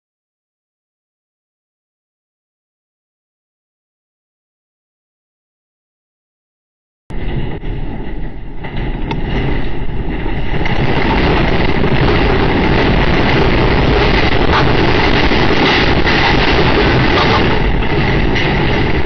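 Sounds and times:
deep earthquake rumble: 7.1s - 19.0s.

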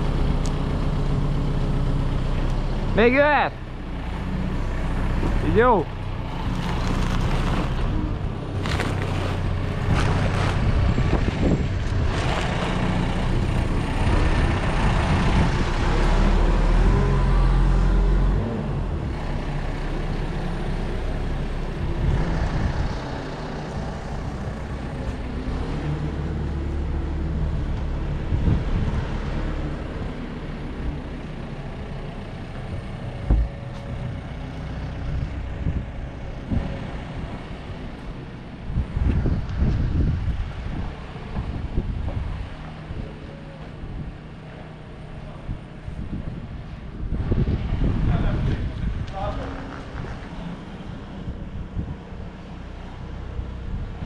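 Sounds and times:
diesel engine revving: 0.0s - 54.0s
sharp knocks: 33.2s - 33.6s.

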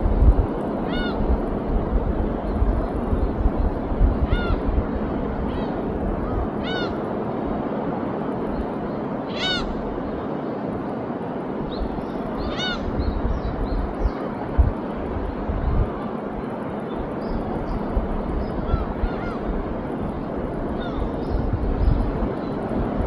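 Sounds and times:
wind: 0.0s - 23.0s
bird harsh crow-like calls: 0.9s - 1.2s, 4.2s - 4.7s, 5.6s - 7.1s, 9.3s - 9.8s, 12.4s - 12.9s, 18.6s - 19.5s.

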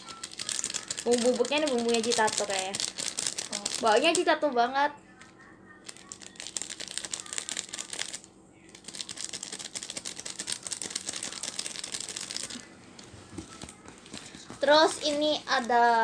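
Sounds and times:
plastic sachet crinkling: 0.0s - 4.3s, 5.8s - 16.0s.

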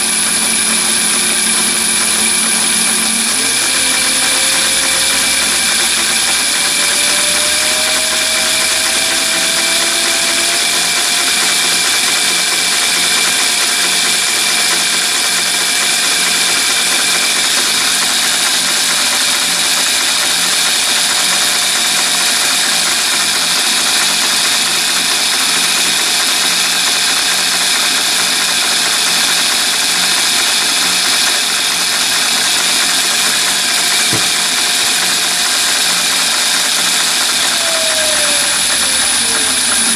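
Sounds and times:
electric motor whining: 0.0s - 16.0s, 33.1s - 39.9s.

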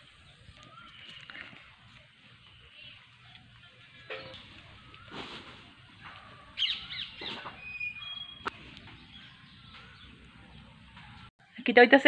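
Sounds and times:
bird whistled notes: 6.6s - 8.5s
bird chirps: 6.6s - 11.3s.

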